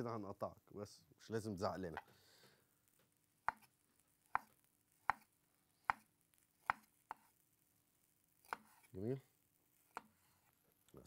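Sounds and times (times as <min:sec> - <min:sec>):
knife chopping on wooden board: 0:03.4 - 0:03.7, 0:04.3 - 0:07.3, 0:08.4 - 0:08.9, 0:09.9 - 0:10.2.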